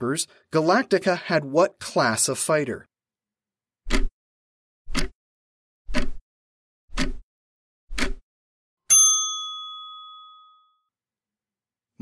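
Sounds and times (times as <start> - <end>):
clock ticks: 3.9 - 4.1, 4.9 - 5.2, 5.9 - 6.2, 6.9 - 7.2, 7.9 - 8.2
bell ding: 8.9 - 10.9.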